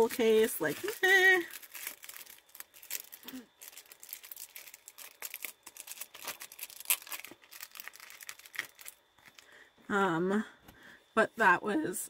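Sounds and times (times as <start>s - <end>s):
plastic packaging crinkling: 0.0s - 9.5s.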